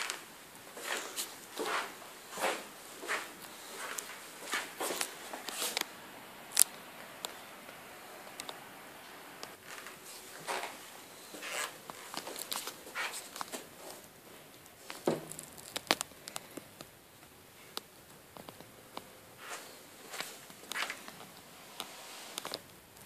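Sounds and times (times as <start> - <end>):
footsteps on hard floor: 0.8 - 5.8.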